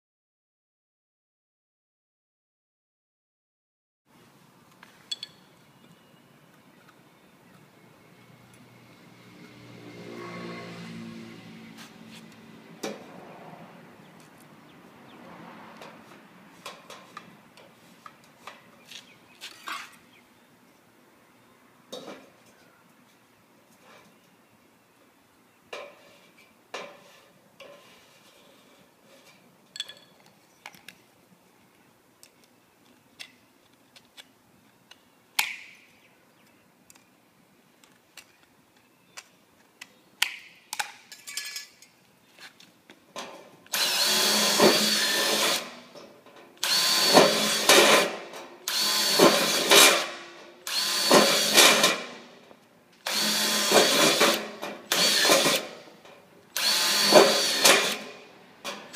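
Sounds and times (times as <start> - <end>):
cordless drill drilling into metal: 43.7 - 45.8, 46.6 - 52.1, 53.0 - 55.8, 56.6 - 58.1.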